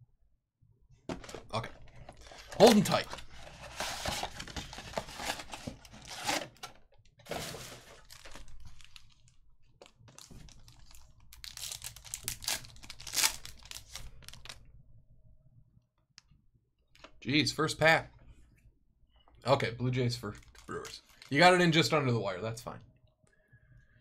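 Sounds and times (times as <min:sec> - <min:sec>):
foil wrapper crinkling: 0:07.4 - 0:09.4, 0:10.0 - 0:14.6.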